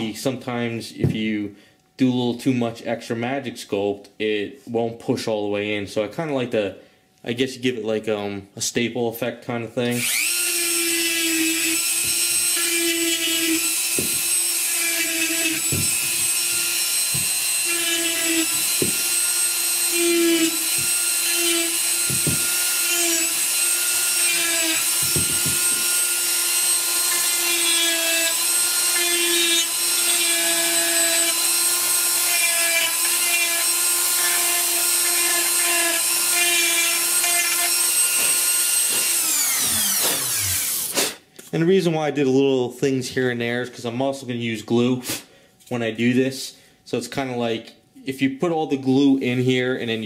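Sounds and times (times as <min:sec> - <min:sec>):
rotary tool whining: 0:10.0 - 0:41.0.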